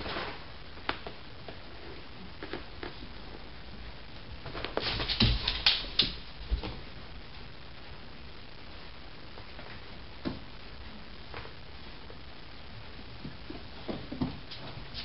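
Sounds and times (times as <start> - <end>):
dog scuffing and thumping: 4.4 - 6.8.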